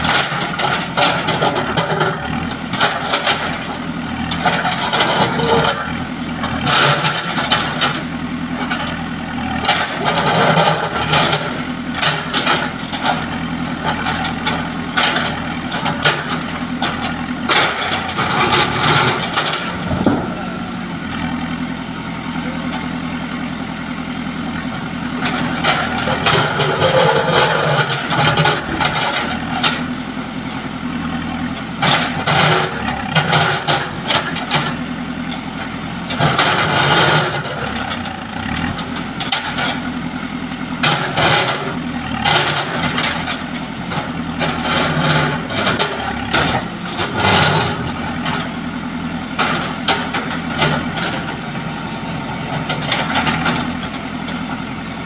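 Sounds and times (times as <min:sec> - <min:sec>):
diesel engine running: 0:00.0 - 0:55.0
concrete scraping and crunching: 0:25.3 - 0:30.0.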